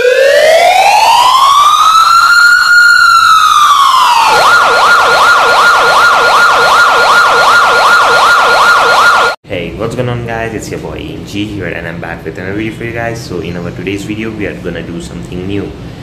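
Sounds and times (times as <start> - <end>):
siren wailing and yelping: 0.0 - 9.4.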